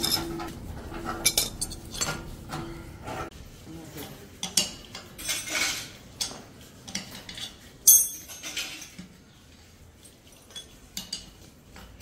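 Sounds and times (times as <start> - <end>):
spanner clinking on wheel nuts: 7.0 - 9.0.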